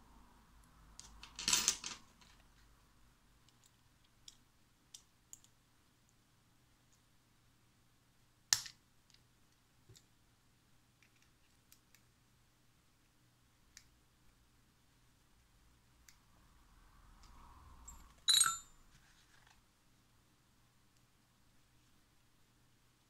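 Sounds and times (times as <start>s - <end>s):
metal parts being handled: 18.2s - 18.7s.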